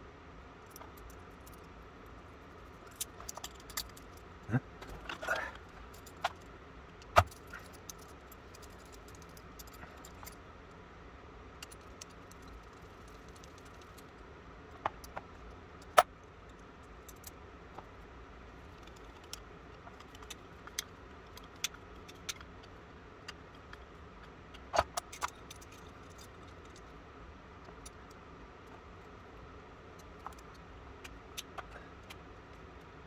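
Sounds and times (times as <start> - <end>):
small metallic clicks and taps: 2.8 - 10.4, 18.7 - 27.0, 30.0 - 33.0.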